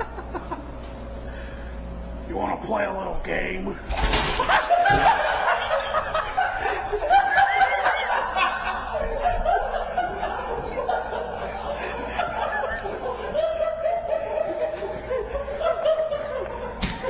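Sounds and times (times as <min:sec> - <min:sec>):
high-pitched laughter: 0:04.4 - 0:16.8.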